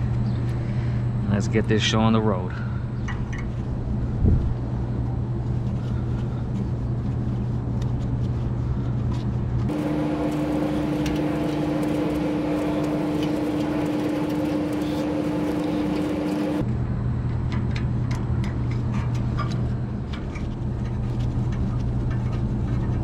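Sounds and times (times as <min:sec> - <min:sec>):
machinery hum: 0:00.0 - 0:07.8, 0:09.6 - 0:18.8.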